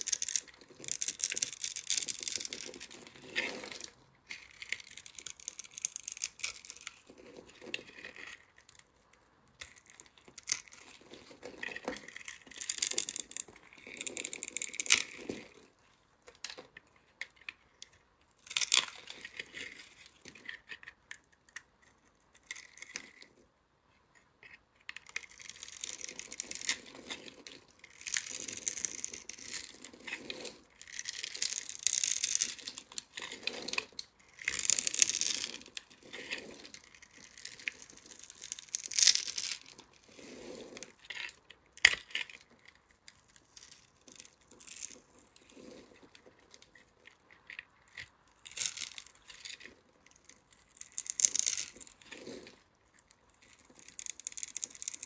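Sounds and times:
knife crunching through soap: 0.0 - 8.9, 9.6 - 15.7, 18.4 - 23.3, 25.0 - 55.0.

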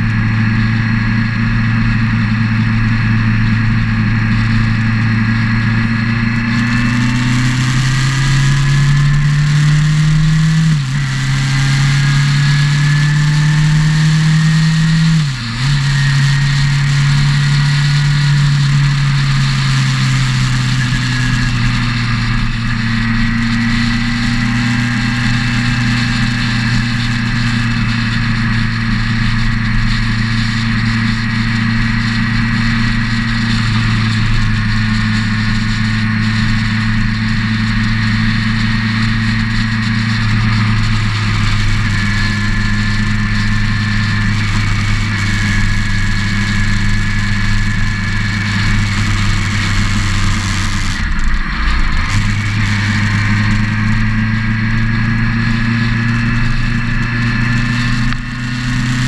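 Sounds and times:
motorcycle engine cruising: 0.0 - 59.0
wind and road rush: 0.0 - 59.0.

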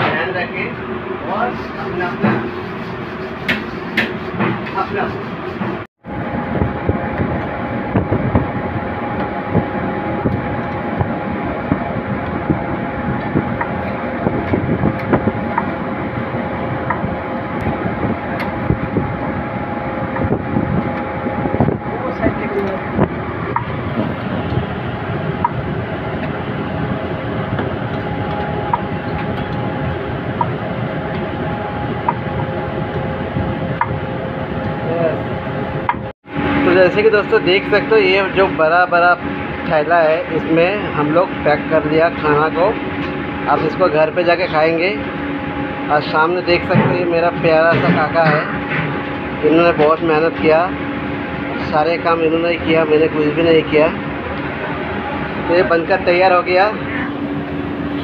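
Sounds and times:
kitchen noise roar: 0.0 - 5.9, 34.8 - 58.0
steady machine noise: 0.0 - 58.0.

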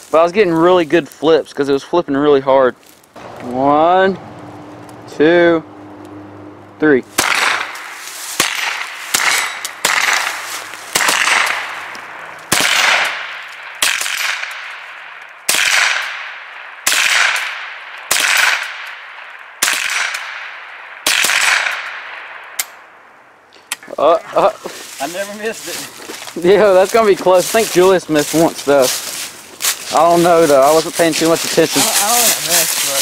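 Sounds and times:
rifle shots echoing: 7.0 - 23.1.

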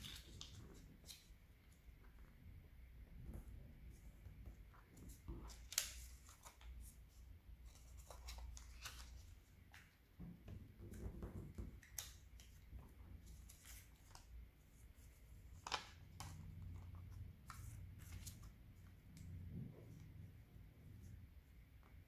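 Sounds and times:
paper rustling and crinkling: 0.0 - 1.4, 4.8 - 10.0.

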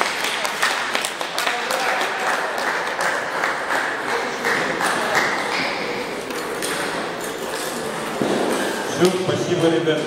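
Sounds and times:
people clapping: 0.0 - 7.8.

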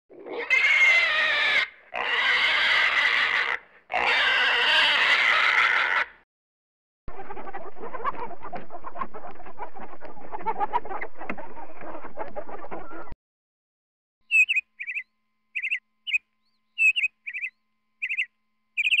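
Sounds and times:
small bird chirping: 14.3 - 19.0.

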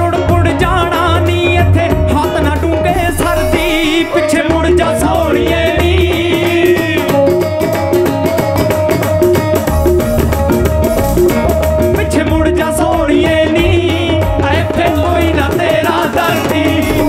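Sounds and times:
melodic band accompaniment: 0.0 - 17.0
tabla rhythm: 0.0 - 17.0
man singing wavering note: 3.0 - 5.5.

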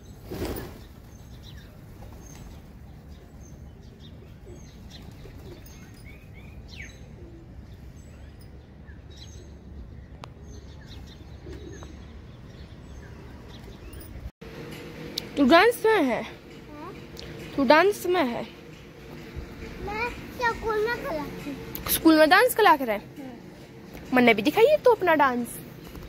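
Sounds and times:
pigeon wings flapping: 0.2 - 1.0.

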